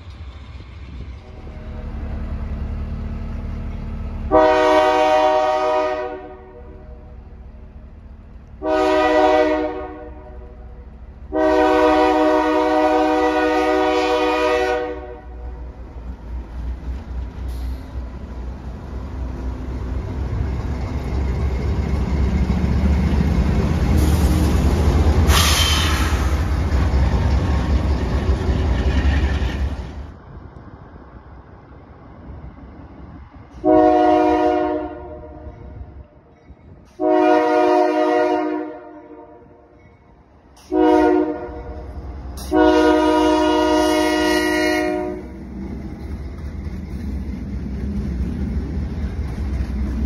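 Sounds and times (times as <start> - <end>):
diesel locomotive engines passing: 0.0 - 50.0
locomotive air horn: 4.3 - 7.0, 8.6 - 10.7, 11.3 - 15.5, 33.6 - 35.7, 37.0 - 39.6, 40.6 - 45.4
high squeal: 25.3 - 29.9.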